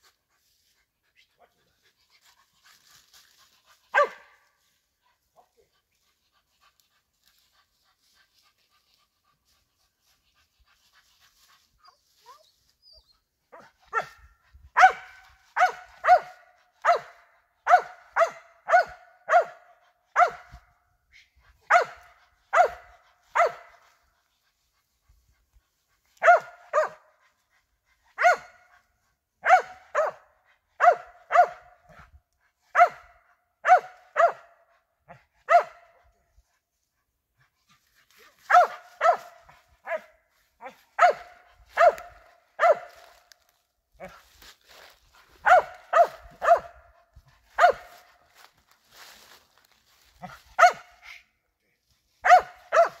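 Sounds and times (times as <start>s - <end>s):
dog barking: 3.9s - 4.5s, 13.5s - 20.7s, 21.6s - 24.0s, 26.2s - 27.2s, 28.1s - 28.8s, 29.4s - 32.1s, 32.7s - 36.1s, 38.2s - 43.3s, 45.3s - 48.2s, 50.2s - 51.2s, 52.2s - 53.0s.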